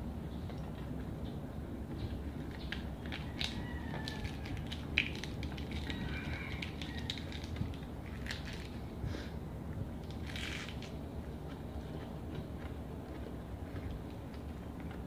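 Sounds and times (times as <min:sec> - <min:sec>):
lettuce leaves crunching: 0:02.4 - 0:08.8, 0:10.0 - 0:11.6.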